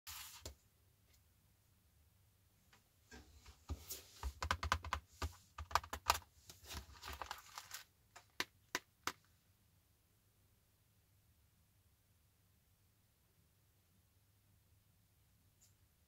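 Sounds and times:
clicks and taps on box: 4.2 - 6.2
plastic wrapping crinkling: 6.6 - 8.5.

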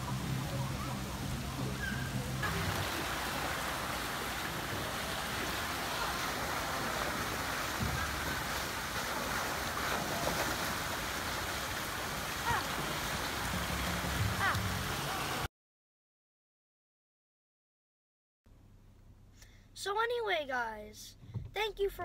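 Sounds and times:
water rushing and splashing: 0.0 - 15.5.

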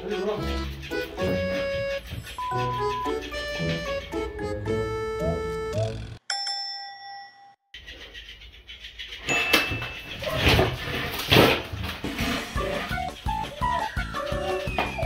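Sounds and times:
ding-dong chime: 6.3 - 7.6.

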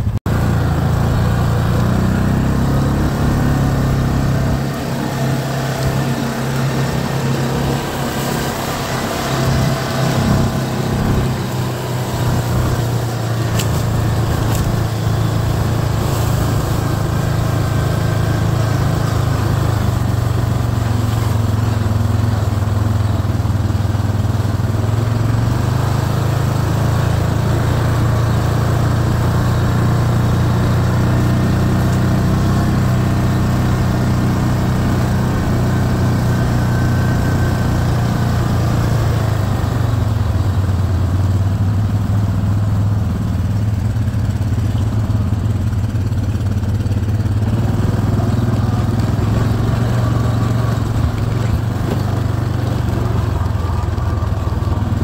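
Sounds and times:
atv engine droning: 0.0 - 55.0.

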